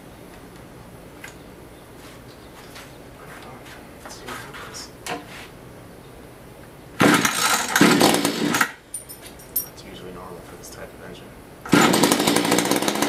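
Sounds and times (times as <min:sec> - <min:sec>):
starter rope pulled: 0:07.0 - 0:08.8, 0:11.7 - 0:13.0
two-stroke engine firing: 0:07.0 - 0:08.8, 0:11.7 - 0:13.0.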